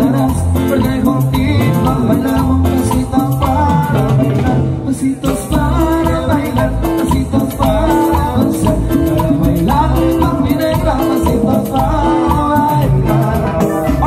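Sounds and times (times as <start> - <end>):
latin dance band playing: 0.0 - 14.0.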